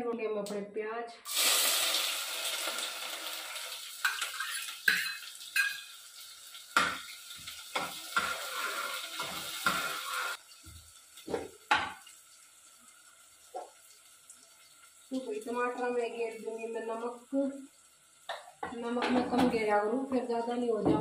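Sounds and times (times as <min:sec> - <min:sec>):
onions sizzling in oil: 0:01.3 - 0:19.1
metal spoon scraping a pot: 0:07.8 - 0:10.4.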